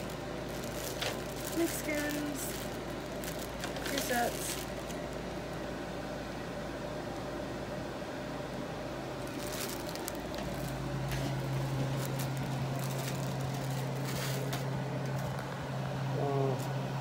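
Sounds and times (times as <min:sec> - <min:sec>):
plastic bag crinkling: 0:00.0 - 0:05.6, 0:09.1 - 0:15.6
steady low hum: 0:00.0 - 0:17.0.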